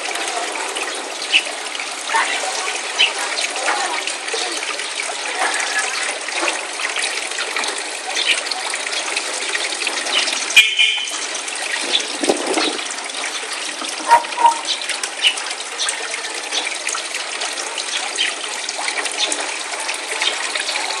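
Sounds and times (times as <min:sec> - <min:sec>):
pond water trickling and splashing: 0:00.0 - 0:21.0
high chirp: 0:10.6 - 0:11.2, 0:14.1 - 0:15.4.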